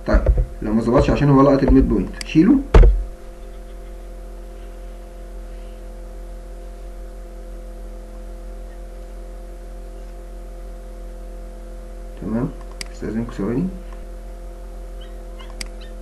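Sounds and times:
constant higher tones: 0.0s - 4.8s
electrical mains hum: 0.0s - 16.0s.

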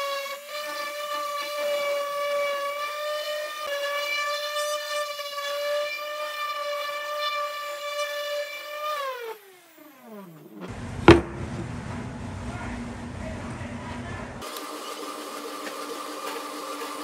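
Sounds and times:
electric sander whining: 0.0s - 11.8s, 14.4s - 17.0s
sharp knock: 11.0s - 11.8s.

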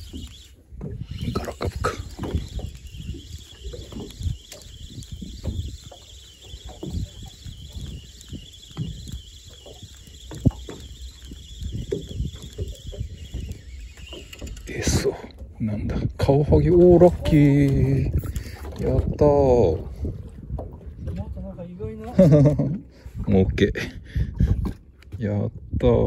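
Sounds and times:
spinning reel being cranked: 0.0s - 15.1s
low knocks and buffeting: 6.6s - 25.8s.

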